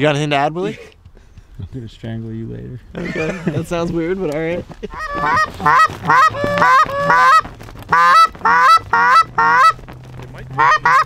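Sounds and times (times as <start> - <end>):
goose call honks and clucks: 4.9 - 9.8, 10.4 - 11.0.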